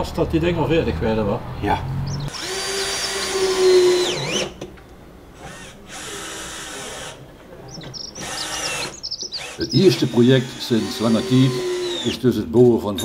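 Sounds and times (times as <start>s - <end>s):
cordless drill whining: 2.3s - 4.6s, 5.4s - 7.2s, 7.9s - 12.2s.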